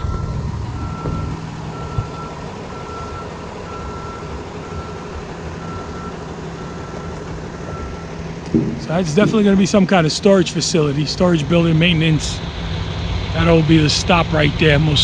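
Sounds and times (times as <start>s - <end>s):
vehicle backup alarm beeping: 0.0s - 10.0s
low steady rumble: 0.0s - 15.0s.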